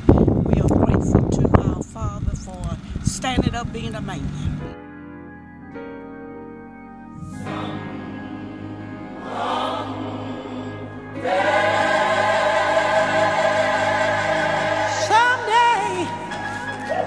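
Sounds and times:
choir holding a chord: 7.0 - 17.0.

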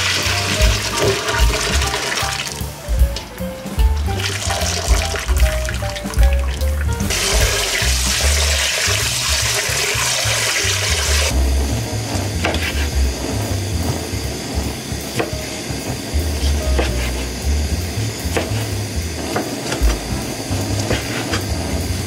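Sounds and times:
broth pouring through a sieve: 0.0 - 2.7, 4.1 - 22.0
background music with low beat: 0.1 - 10.2, 11.0 - 22.0
knife cutting on wooden board: 18.3 - 20.0, 20.7 - 21.5.

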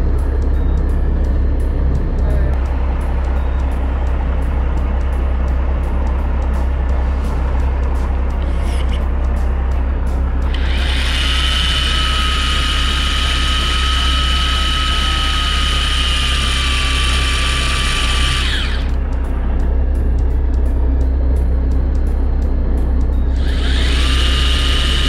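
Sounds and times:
electric fishing reel motor whining: 10.5 - 19.0, 23.3 - 25.0.

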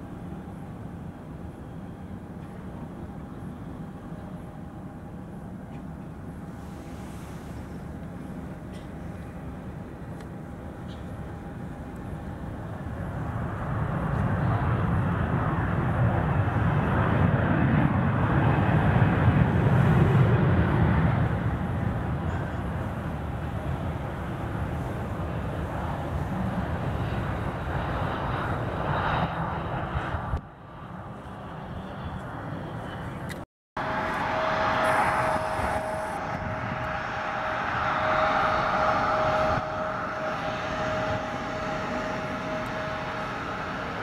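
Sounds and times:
jet engines rumbling: 0.0 - 44.0.

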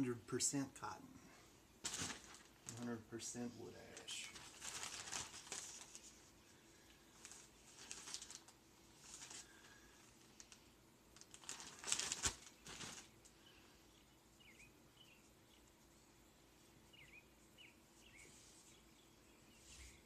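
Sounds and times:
plastic bag crinkling: 1.8 - 3.0, 3.9 - 6.2, 7.0 - 10.6, 11.2 - 13.4
faint bird chirps: 13.3 - 15.8, 16.6 - 20.0.

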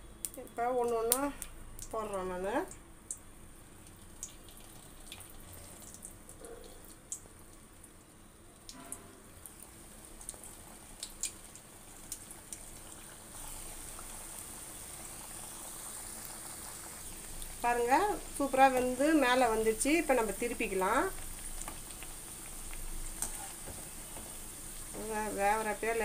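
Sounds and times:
dough sizzling in hot oil: 0.0 - 26.0
small pops and crackles: 0.2 - 2.0, 2.7 - 7.6, 10.2 - 14.2, 21.0 - 25.2.

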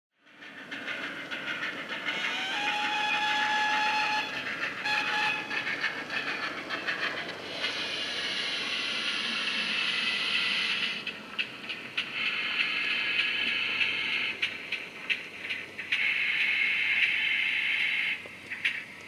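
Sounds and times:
model steam engine chuffing and hissing: 0.2 - 19.0
locomotive whistle: 2.1 - 5.8.

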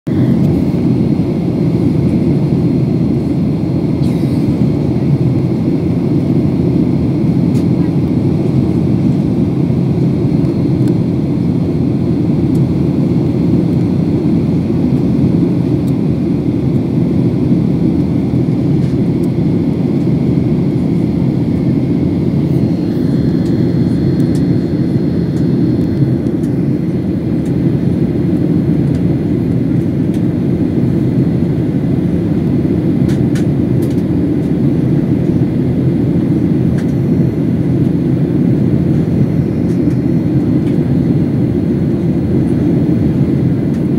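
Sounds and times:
jet airliner cabin noise: 0.1 - 43.9.

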